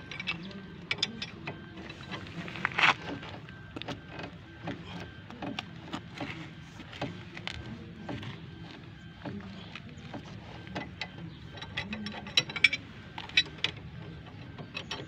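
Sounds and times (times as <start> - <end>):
steady low hum: 0.0 - 15.0
spanner clicking on a nut: 10.8 - 15.0.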